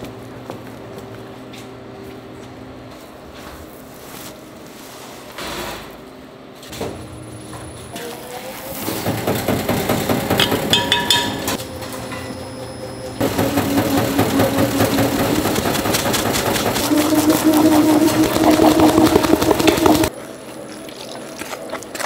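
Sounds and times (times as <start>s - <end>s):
motor hum: 11.7s - 20.5s.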